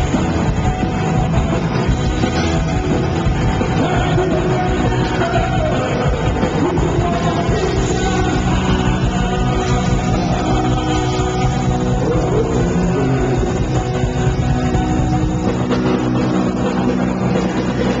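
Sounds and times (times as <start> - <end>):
punk rock band playing live: 0.0 - 18.0
person singing: 3.6 - 14.3.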